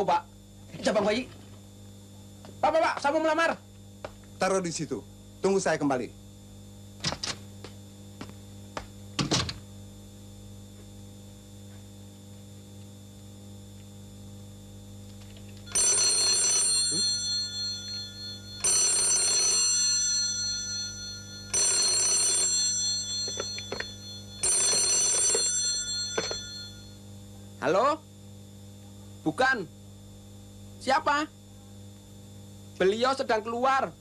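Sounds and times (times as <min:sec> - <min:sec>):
telephone bell ringing: 0:15.7 - 0:27.0.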